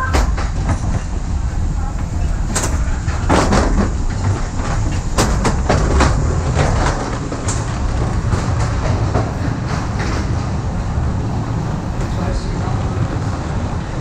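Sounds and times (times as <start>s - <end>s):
clacks and knocks: 0.0s - 10.8s
suitcase wheels rumbling: 0.0s - 14.0s.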